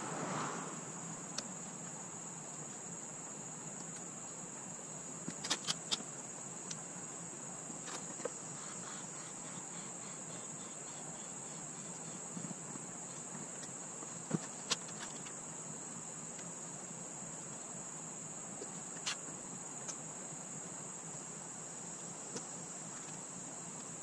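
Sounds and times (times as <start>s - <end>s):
insects droning: 0.0s - 24.0s
clicks of straps and clips: 5.3s - 6.0s.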